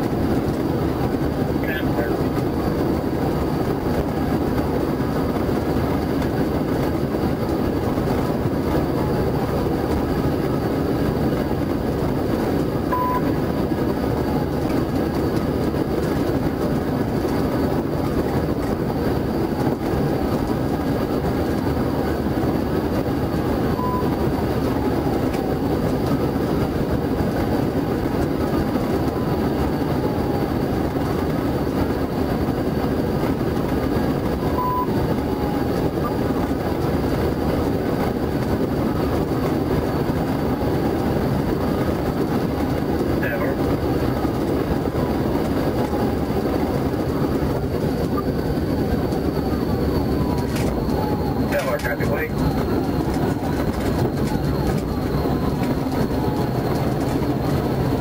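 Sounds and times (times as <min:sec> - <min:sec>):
car road and wind noise: 0:00.0 - 0:58.0.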